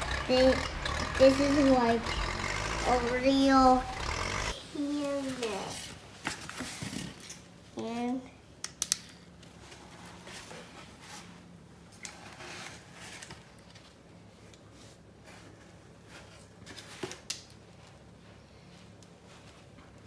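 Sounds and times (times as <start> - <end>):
plastic toys rustling and knocking: 5.2 - 7.4.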